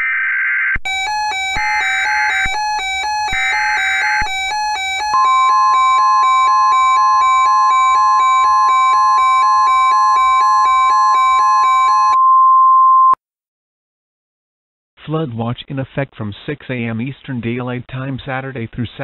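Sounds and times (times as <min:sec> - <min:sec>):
alternating electronic tones: 0:00.0 - 0:12.4
steady attention tone: 0:01.0 - 0:11.4.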